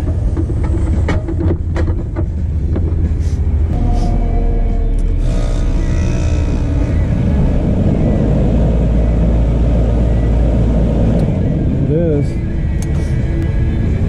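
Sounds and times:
faint tones: 0:03.4 - 0:14.0.

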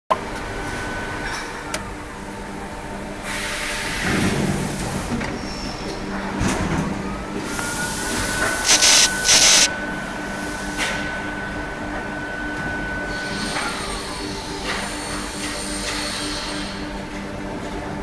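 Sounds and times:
machine whine: 0:07.4 - 0:10.2
machine hum: 0:08.4 - 0:09.7
loud hiss bursts: 0:08.6 - 0:09.7.

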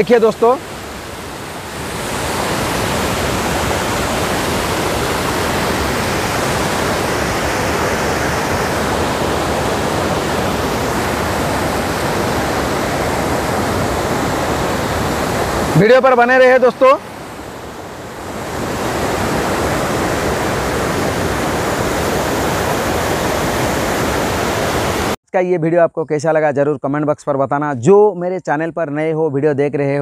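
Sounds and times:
water rushing over rocks: 0:00.0 - 0:25.2.

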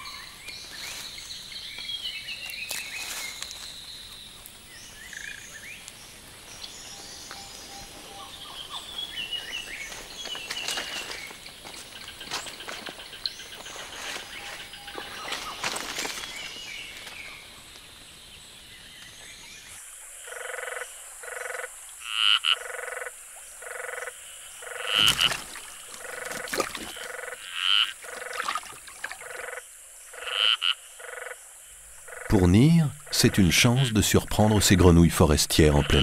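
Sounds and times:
faint forest ambience: 0:00.0 - 0:36.0
frogs croaking: 0:00.0 - 0:36.0
louder higher frog call: 0:20.2 - 0:31.4, 0:32.0 - 0:33.7.

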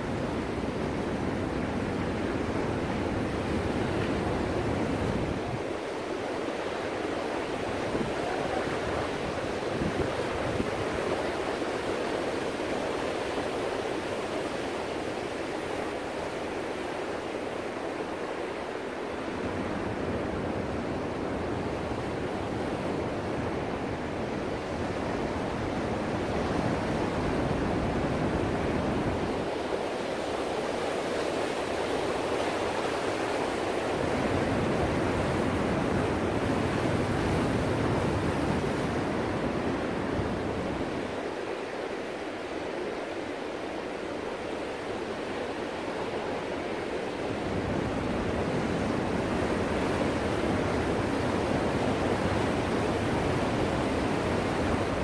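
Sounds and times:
ocean surf rushing ashore: 0:00.0 - 0:55.0.

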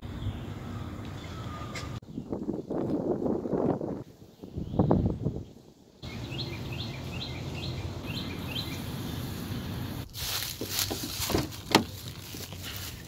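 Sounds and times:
low outdoor rumble: 0:06.2 - 0:13.0
footsteps crunching dry leaves: 0:10.0 - 0:13.0.

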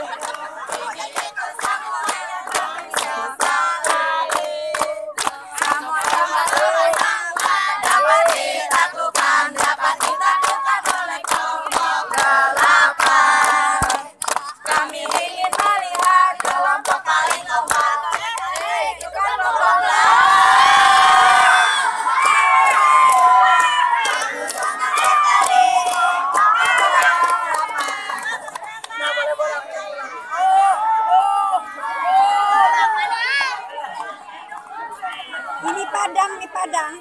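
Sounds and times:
hand-clapping: 0:00.0 - 0:19.1, 0:22.2 - 0:29.0
young voices chanting: 0:00.0 - 0:36.0.

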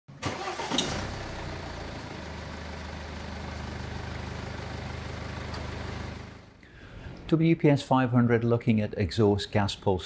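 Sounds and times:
car engine starting and idling: 0:00.1 - 0:06.6.

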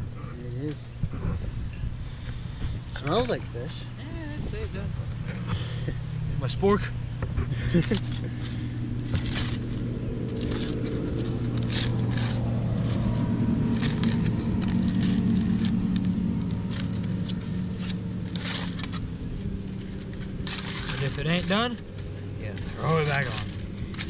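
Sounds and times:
motor droning: 0:00.0 - 0:24.0
aluminium foil crinkling: 0:07.6 - 0:24.0.

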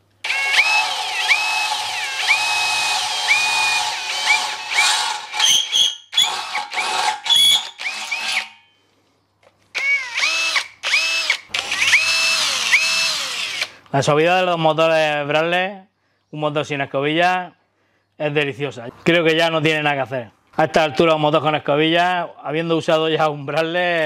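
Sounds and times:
cordless drill motor whine: 0:00.2 - 0:08.6, 0:09.8 - 0:13.7
drill drilling into steel: 0:00.2 - 0:08.6, 0:09.8 - 0:13.8.

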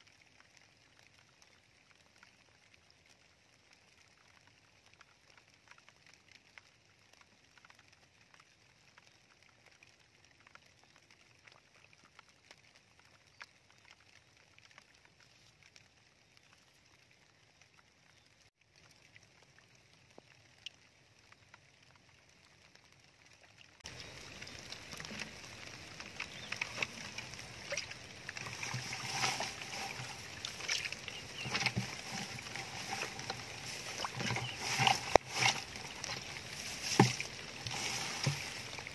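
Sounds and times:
muddy water splashing: 0:23.8 - 0:38.9.

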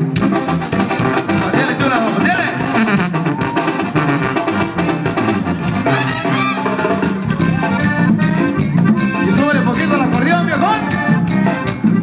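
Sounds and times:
horn section: 0:00.0 - 0:08.5
drums: 0:00.0 - 0:12.0
live band playing latin dance music: 0:00.0 - 0:12.0.

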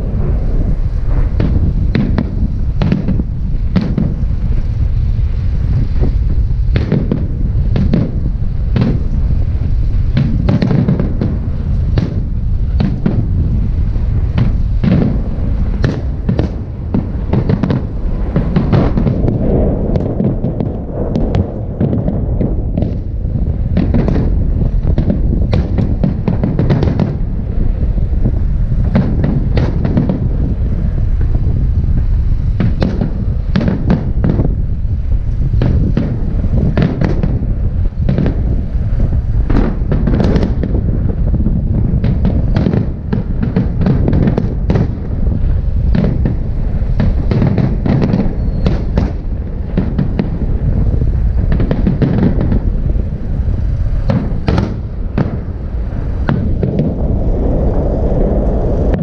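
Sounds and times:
fireworks bangs and crackles: 0:00.0 - 0:59.0
low rumble: 0:00.0 - 0:59.0.

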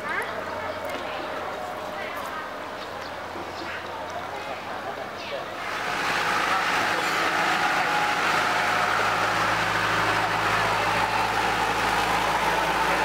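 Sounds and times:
truck engine idling: 0:05.5 - 0:13.0.

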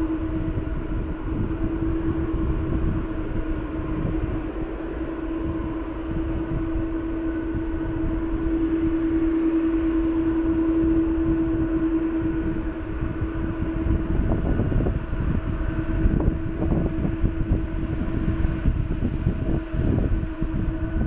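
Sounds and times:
jet engines humming at taxi power: 0:00.0 - 0:21.0.

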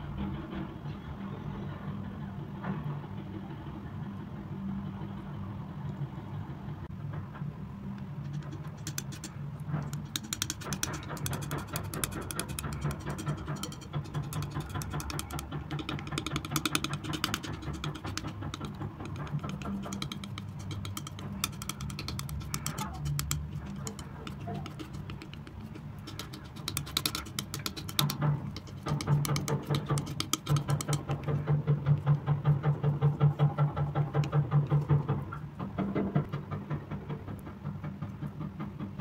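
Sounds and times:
steady low hum: 0:00.0 - 0:39.0
palette knife scraping paint: 0:08.2 - 0:34.3
wet sticky clicking of paint: 0:08.3 - 0:31.1.

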